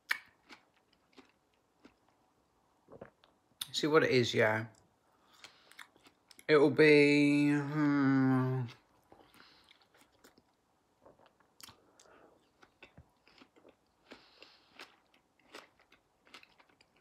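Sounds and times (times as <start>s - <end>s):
faint chewing mouth clicks: 4.7s - 6.5s, 9.1s - 17.0s.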